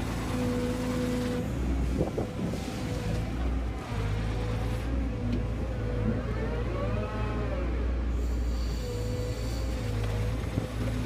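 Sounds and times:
excavator engine running: 0.0s - 11.0s
hydraulic whine: 4.2s - 11.0s.

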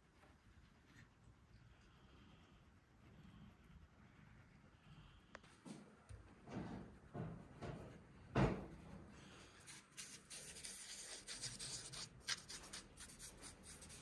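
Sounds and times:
fast scratchy rubbing: 9.7s - 14.0s.

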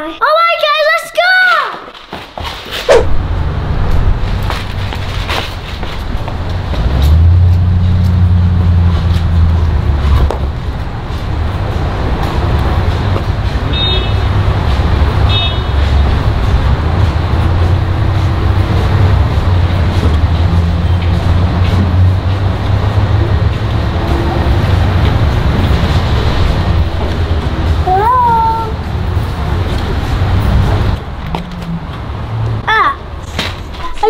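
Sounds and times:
road traffic rumble: 2.6s - 34.0s
engine hum: 2.9s - 33.8s.

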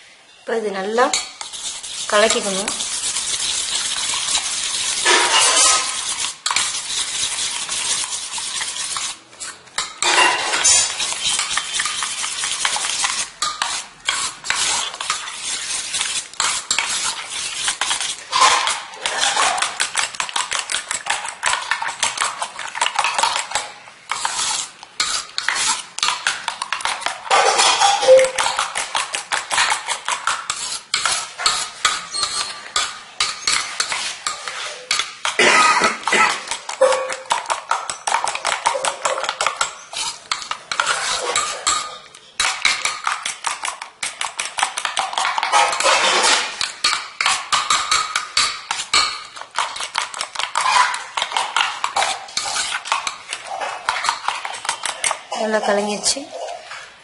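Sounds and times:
spoon clinking against steel bowl: 26.8s - 28.8s, 31.0s - 43.8s.

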